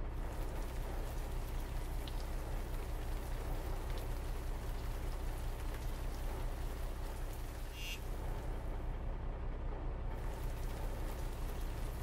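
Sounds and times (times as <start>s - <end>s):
low rumble: 0.0s - 12.0s
rain hissing: 0.1s - 8.6s.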